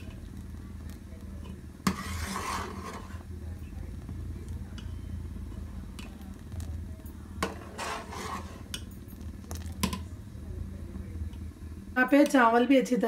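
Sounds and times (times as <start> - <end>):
ladle scraping and clinking pot: 1.4 - 3.2, 7.4 - 10.0.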